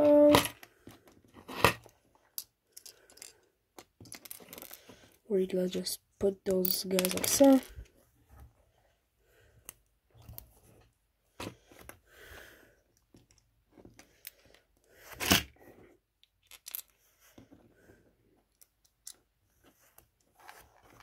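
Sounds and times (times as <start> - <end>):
plastic pieces clicking: 6.5 - 7.8, 16.2 - 16.9, 18.5 - 19.2.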